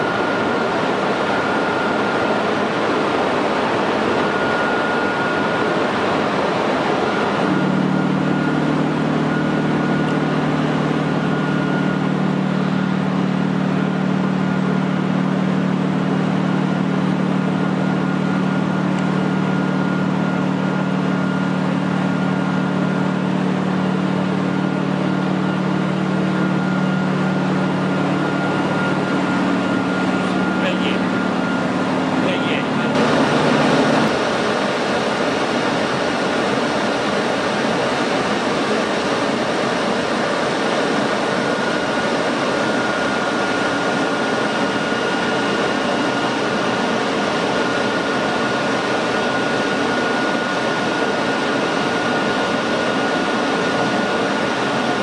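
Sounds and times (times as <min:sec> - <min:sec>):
locomotive cooling blowers whining: 0:00.0 - 0:55.0
low steady hum: 0:06.7 - 0:34.6.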